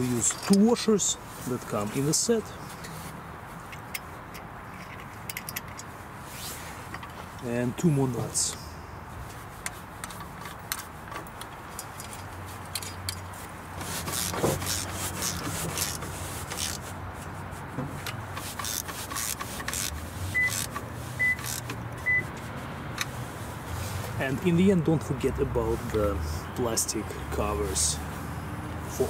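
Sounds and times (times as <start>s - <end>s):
ratchet clicking: 3.7s - 5.9s, 9.6s - 16.8s, 18.0s - 22.0s.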